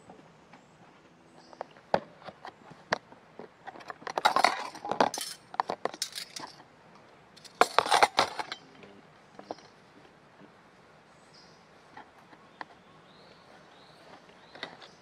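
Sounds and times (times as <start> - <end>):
metal spoons clinking: 4.3 - 5.4, 6.0 - 6.5.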